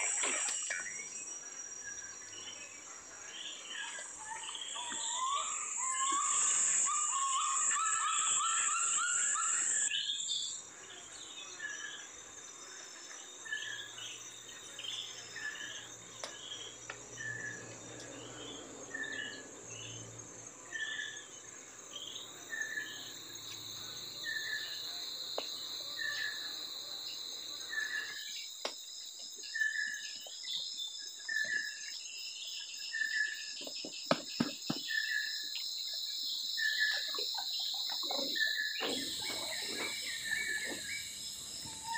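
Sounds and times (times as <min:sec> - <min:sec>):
insects droning: 0:00.0 - 0:41.9
water splashes and knocks: 0:33.6 - 0:34.9.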